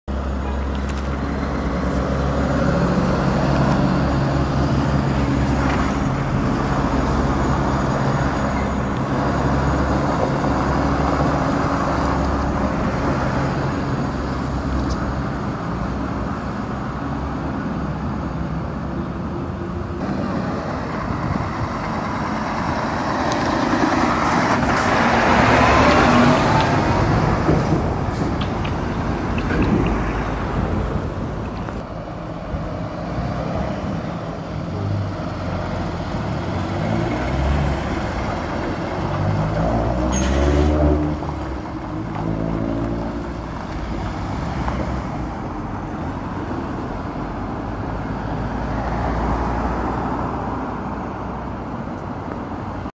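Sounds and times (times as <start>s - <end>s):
road traffic: 0.0s - 52.9s
lorry diesel engines pulling away: 0.1s - 52.8s.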